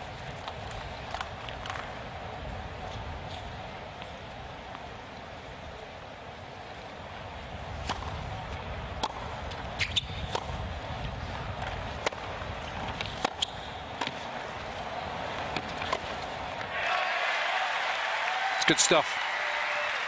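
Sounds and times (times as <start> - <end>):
wind rumble on microphone: 7.1 - 13.2
tennis ball struck by rackets: 7.8 - 8.3, 8.9 - 10.7, 11.6 - 14.3, 15.3 - 16.7.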